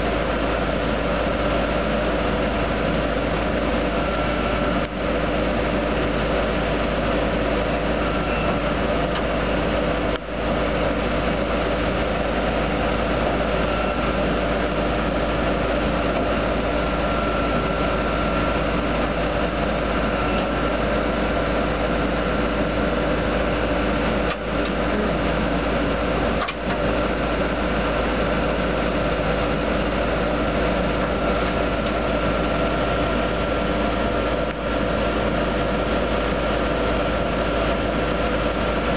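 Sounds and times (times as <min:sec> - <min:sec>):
drill rig engine humming: 0:00.0 - 0:38.9.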